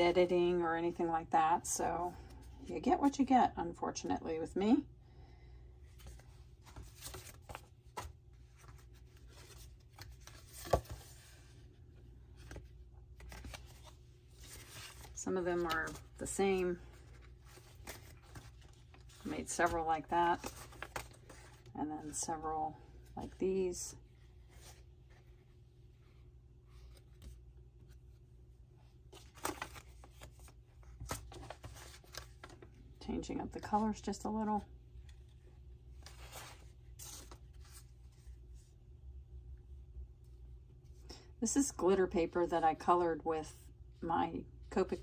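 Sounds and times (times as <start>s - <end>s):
low room hum: 0.0s - 45.0s
paper card rustling: 6.0s - 11.5s, 12.3s - 22.2s, 29.1s - 32.8s, 36.0s - 38.4s.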